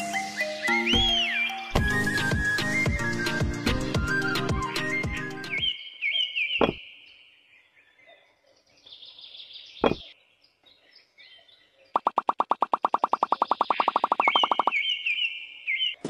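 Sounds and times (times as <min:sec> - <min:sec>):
birds chirping: 0:00.1 - 0:16.0
fast repeating pulse: 0:12.0 - 0:14.7.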